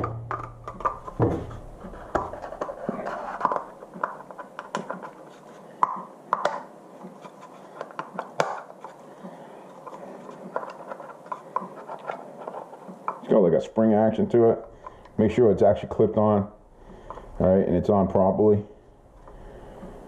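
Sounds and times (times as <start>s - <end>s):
plastic rubbing: 0.3s - 13.4s.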